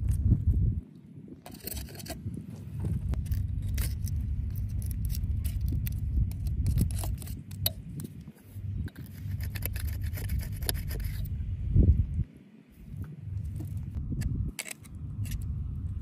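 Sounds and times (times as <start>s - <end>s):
steady low rumble: 0.0s - 16.0s
metal pick scraping oyster shells: 1.4s - 2.3s, 3.1s - 11.3s, 14.5s - 15.5s.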